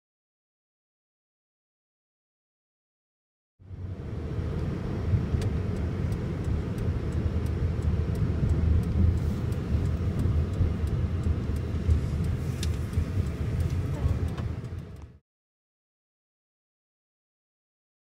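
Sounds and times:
vehicle engine rumble: 3.6s - 15.2s.

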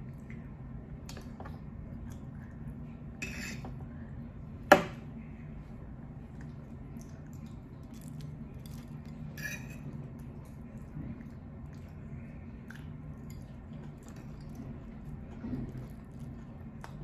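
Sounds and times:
steady low hum: 0.0s - 17.0s
fork scraping a plate: 3.2s - 3.7s, 9.3s - 10.0s.

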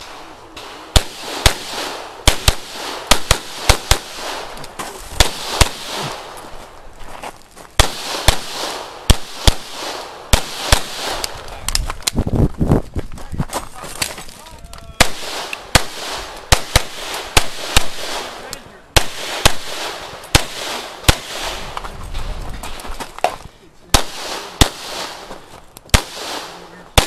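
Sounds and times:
pistol shots: 0.0s - 6.4s, 7.8s - 11.5s, 15.0s - 21.8s, 23.9s - 25.3s, 25.9s - 27.0s.

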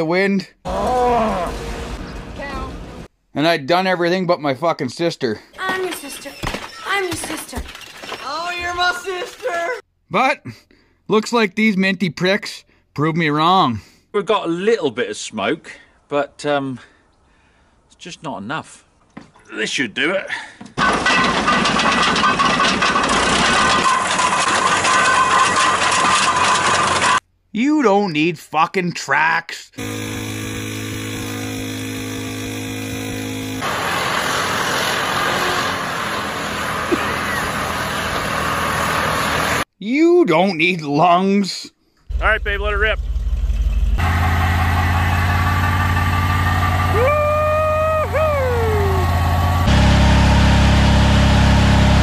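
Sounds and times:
engine at high revs: 29.8s - 39.6s, 44.0s - 47.3s, 48.0s - 52.0s
tires squealing: 44.0s - 51.8s
wailing tone sliding downward: 44.2s - 51.0s.

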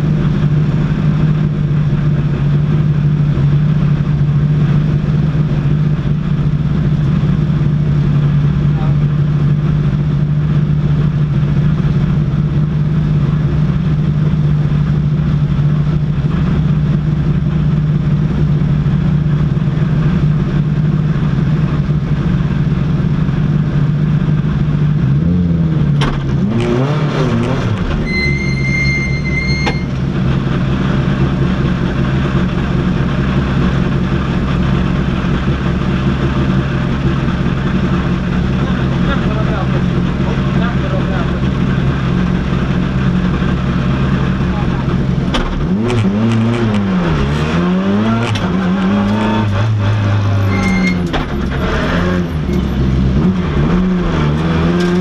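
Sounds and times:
car engine idling: 0.0s - 26.9s, 27.6s - 55.0s
high-pitched electronic beep: 28.0s - 30.0s, 50.0s - 51.1s.

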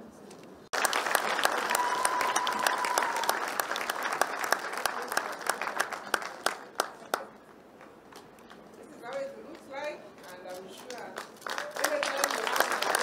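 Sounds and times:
audience applauding: 0.7s - 8.6s, 10.9s - 13.0s.

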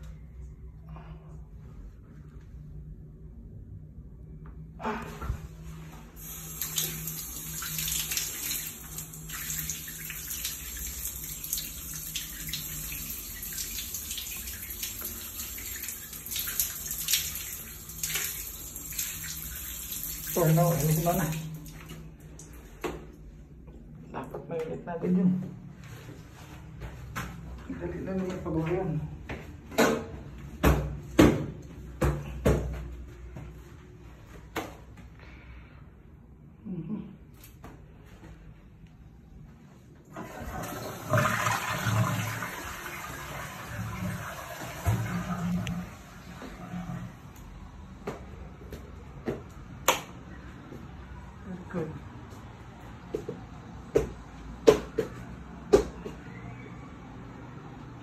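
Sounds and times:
shower spraying on tiles: 6.2s - 22.7s.

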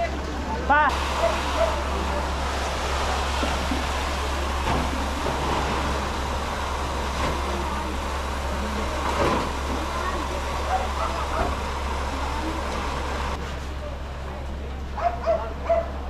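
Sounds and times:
engine-like hum: 0.0s - 16.0s
noisy hiss: 0.9s - 13.4s.

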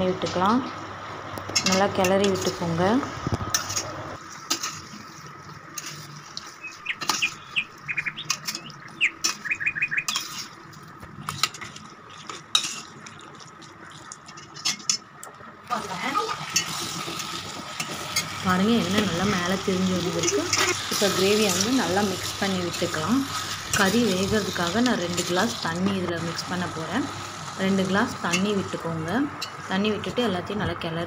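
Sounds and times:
bird chirping: 6.6s - 10.2s
metal spoon scraping a pot: 10.1s - 10.6s.

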